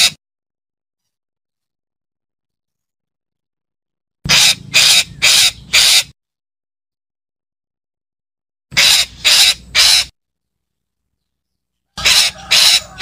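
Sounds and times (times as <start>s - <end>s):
parakeet harsh calls: 4.3s - 6.1s, 8.7s - 10.1s, 12.0s - 13.0s.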